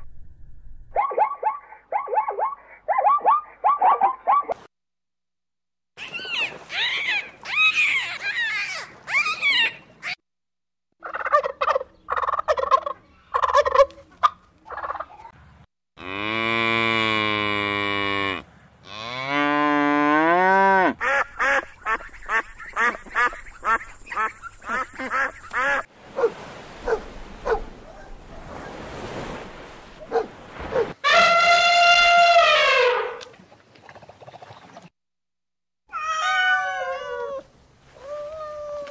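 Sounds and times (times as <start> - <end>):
cow mooing: 16.0 - 21.0.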